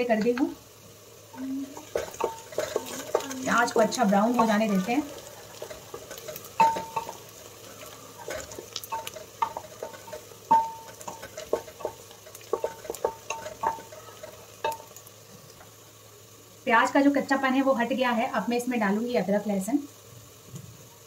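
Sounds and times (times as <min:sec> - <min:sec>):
faint sizzle: 0:00.0 - 0:21.0
spatula scraping pot: 0:01.6 - 0:14.8
spatula knocking on metal pot: 0:01.8 - 0:07.2, 0:08.2 - 0:14.9.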